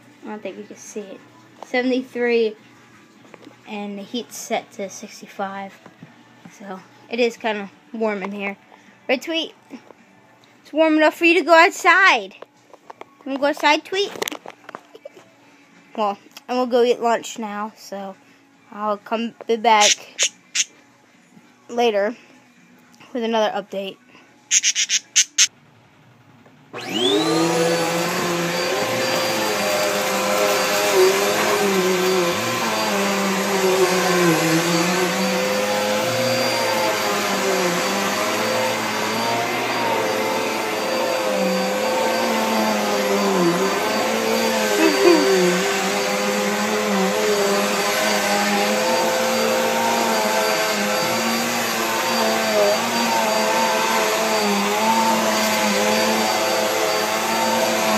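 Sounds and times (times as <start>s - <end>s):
vacuum cleaner motor running: 26.8s - 57.9s.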